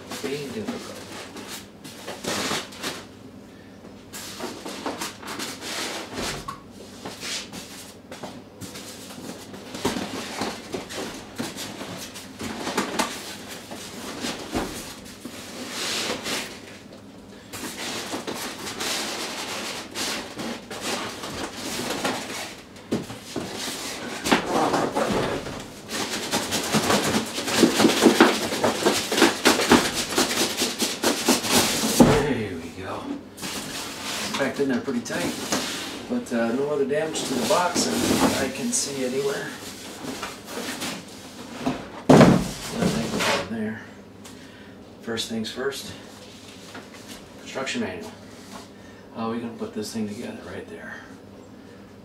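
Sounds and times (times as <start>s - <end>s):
cardboard boxes scraping: 33.4s - 43.5s.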